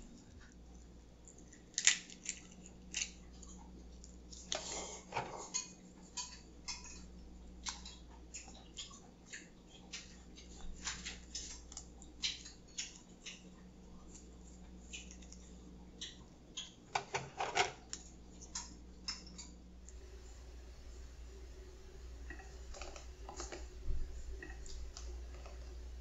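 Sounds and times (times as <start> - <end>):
walnut shells cracking: 1.6 - 3.2.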